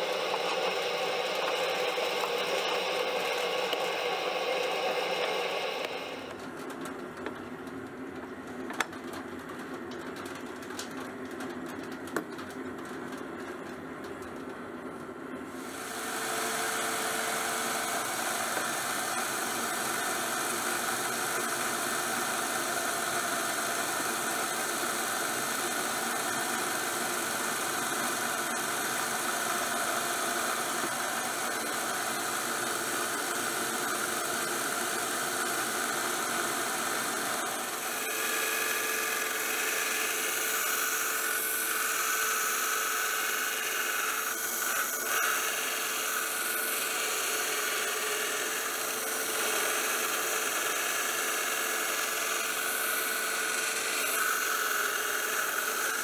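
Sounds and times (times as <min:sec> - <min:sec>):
power tool squealing: 0:00.0 - 0:06.3
saw cutting steel: 0:00.0 - 0:06.3, 0:36.8 - 0:56.0.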